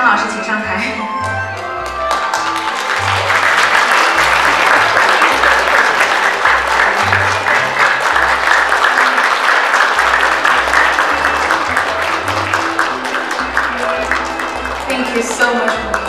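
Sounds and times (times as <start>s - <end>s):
audience applauding: 1.5s - 16.0s.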